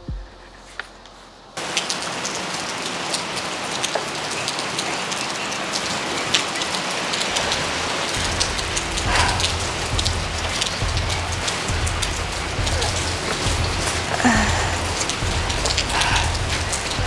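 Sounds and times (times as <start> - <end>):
low hum: 0.0 - 1.6, 7.3 - 17.0
heavy rain on pavement: 1.6 - 17.0.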